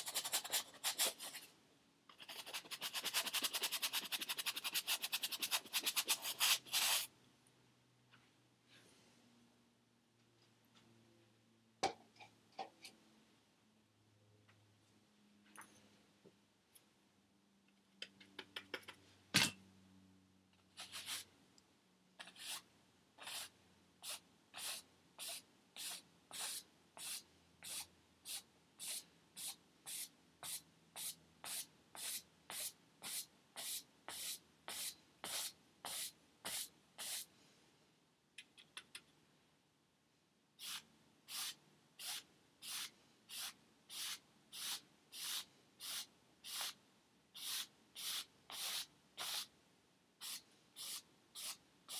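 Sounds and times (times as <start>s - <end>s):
paintbrush scrubbing on canvas: 2.2s - 7.1s.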